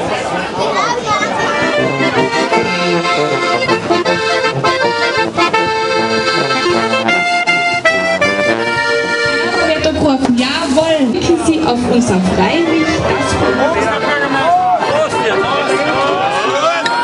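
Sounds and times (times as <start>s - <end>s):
clarinet: 1.3s - 10.0s
button accordion: 1.3s - 16.8s.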